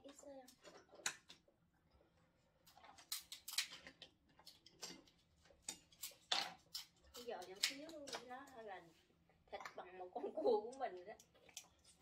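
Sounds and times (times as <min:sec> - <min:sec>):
crab shells cracking: 0:02.6 - 0:05.1, 0:05.7 - 0:08.6.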